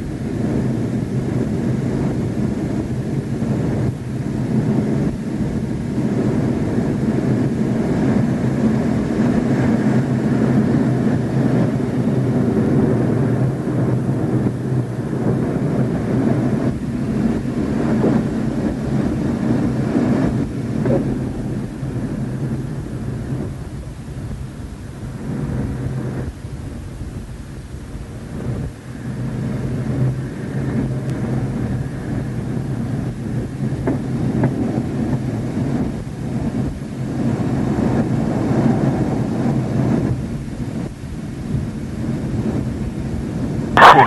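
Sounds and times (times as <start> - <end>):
jet engines roaring: 0.0 - 41.1, 43.1 - 44.0
rushing air: 38.4 - 44.0.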